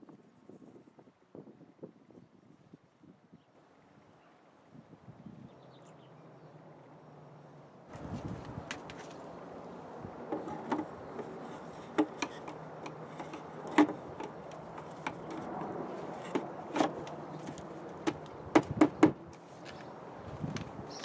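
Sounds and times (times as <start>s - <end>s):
hard plastic clicks and knocks: 10.3s - 19.2s.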